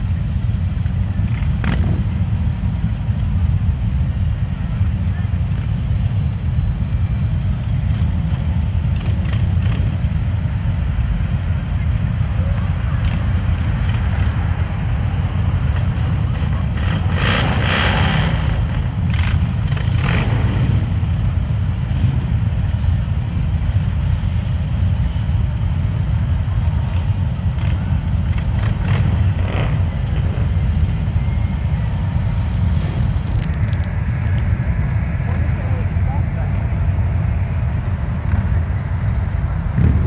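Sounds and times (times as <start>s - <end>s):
motorcycle engines rumbling: 0.0s - 40.0s.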